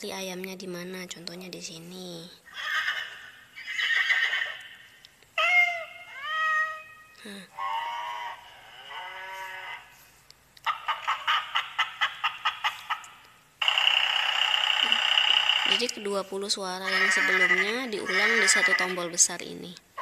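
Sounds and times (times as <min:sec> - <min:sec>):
recorded animal calls from speaker: 0:02.2 - 0:10.0, 0:10.6 - 0:20.0
fast repeated pulsing sound: 0:13.6 - 0:16.3.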